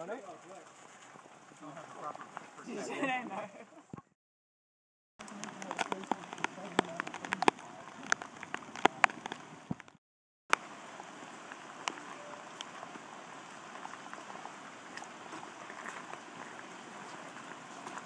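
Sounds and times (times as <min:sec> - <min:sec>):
steady rain: 0:00.0 - 0:03.7, 0:05.2 - 0:18.0
rain taps: 0:05.2 - 0:18.0.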